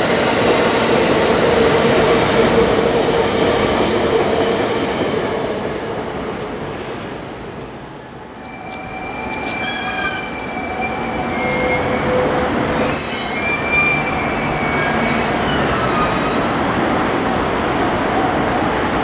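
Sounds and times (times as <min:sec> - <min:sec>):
train rumbling: 0:00.0 - 0:19.0
train wheels squealing on rails: 0:08.2 - 0:16.6.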